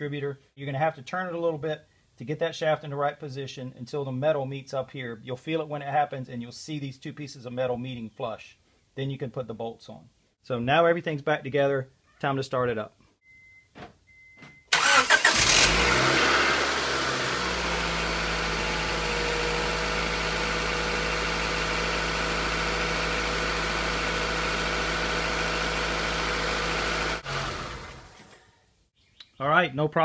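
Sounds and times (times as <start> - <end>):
car engine starting and idling: 14.7 - 28.5.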